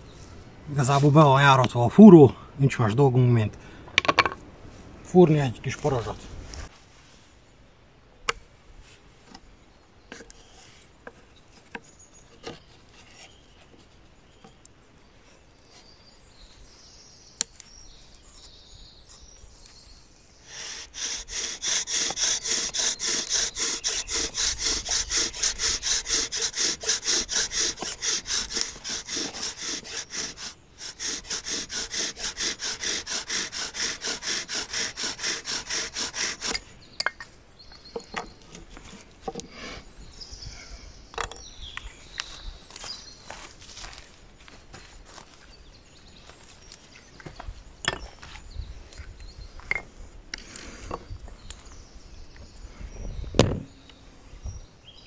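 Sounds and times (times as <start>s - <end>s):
wood rubbing on wood: 20.5s - 36.7s.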